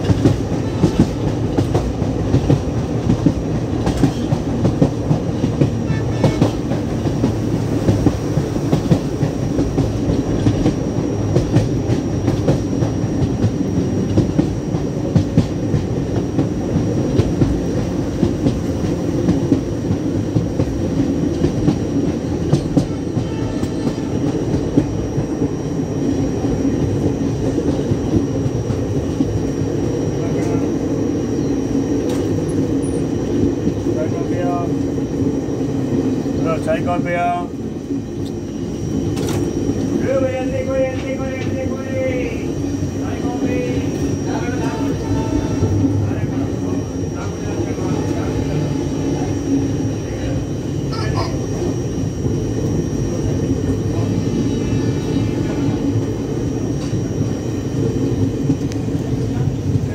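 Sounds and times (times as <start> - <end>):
clickety-clack over rail joints: 0.0 - 25.7, 26.4 - 30.7, 32.0 - 34.8, 37.8 - 42.6, 55.0 - 57.3
train wheels rumbling on rails: 0.0 - 59.9.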